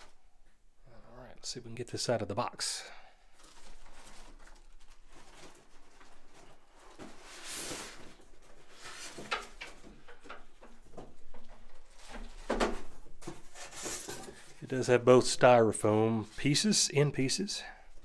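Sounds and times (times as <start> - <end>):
plastic bag rustling: 3.3 - 10.0
styrofoam and cardboard scraping: 7.0 - 9.3, 13.4 - 14.5.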